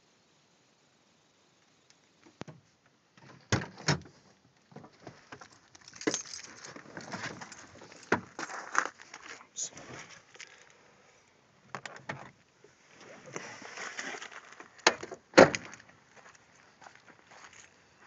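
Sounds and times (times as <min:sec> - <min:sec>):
rustling: 0:04.1 - 0:11.4, 0:12.2 - 0:17.8.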